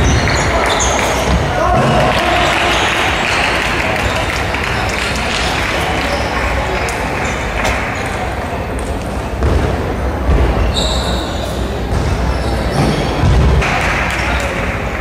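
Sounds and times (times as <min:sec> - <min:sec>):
high squeak: 0:10.6 - 0:13.2.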